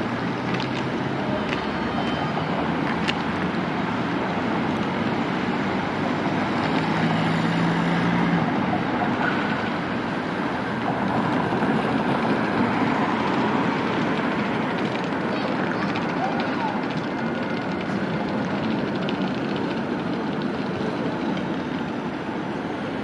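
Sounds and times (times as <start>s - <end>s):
city street traffic: 0.0s - 23.0s
tram approaching: 0.0s - 23.0s.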